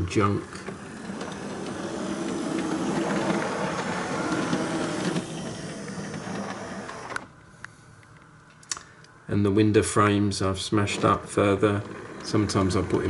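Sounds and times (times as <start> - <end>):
model train whirring: 0.0 - 7.3, 10.4 - 13.0.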